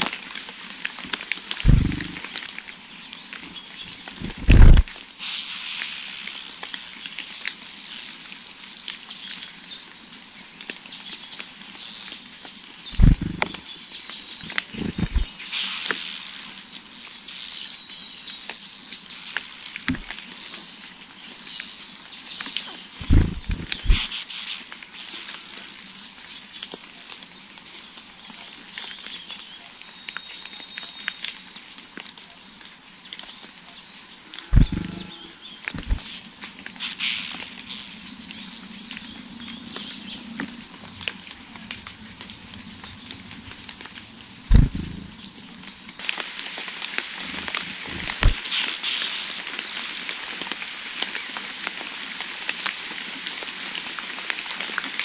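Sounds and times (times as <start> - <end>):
nestlings chirping rapidly: 0.3 - 2.3, 4.1 - 13.6, 14.3 - 28.2, 33.6 - 40.8, 44.3 - 45.3, 47.8 - 51.6
dull thumps: 1.7 - 2.2, 4.2 - 4.9, 13.0 - 13.6, 14.7 - 15.3, 23.0 - 24.1, 34.6 - 35.1, 35.8 - 36.1, 44.5 - 45.2, 47.7 - 48.4.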